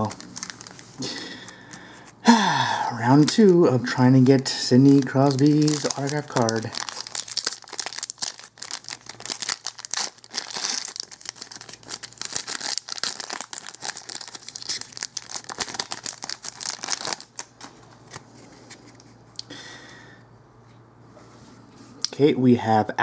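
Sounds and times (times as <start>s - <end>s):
foil wrapper tearing and crinkling: 0.0s - 1.2s, 4.8s - 17.7s.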